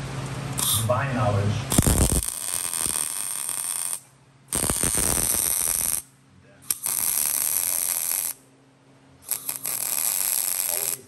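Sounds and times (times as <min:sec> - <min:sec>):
welder arc crackling: 0:01.7 - 0:06.1, 0:06.7 - 0:08.4, 0:09.2 - 0:11.0.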